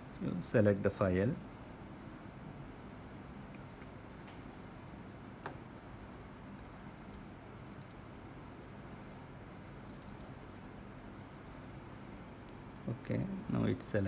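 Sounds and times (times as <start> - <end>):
low steady room hum: 0.0 - 14.0
laptop clicks: 9.9 - 10.3.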